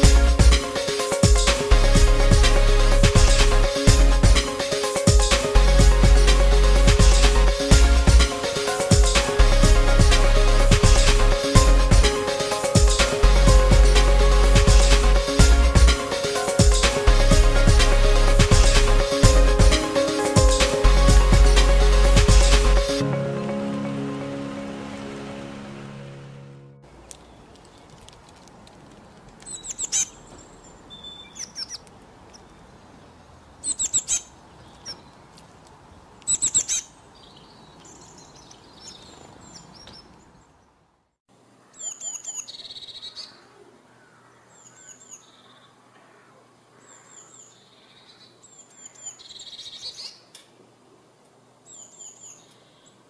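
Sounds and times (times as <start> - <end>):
small songbirds chirping: 29.4 - 32.7, 35.9 - 40.8, 51.7 - 53.0.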